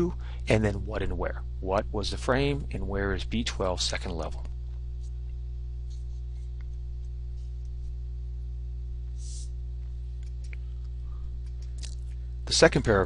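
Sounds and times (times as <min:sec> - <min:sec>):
electrical mains hum: 0:00.0 - 0:13.0
soft hiss: 0:03.3 - 0:13.0.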